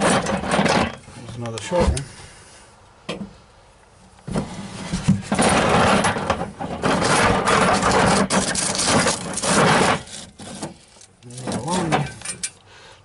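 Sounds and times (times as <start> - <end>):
metal springs clattering: 11.2 - 12.6.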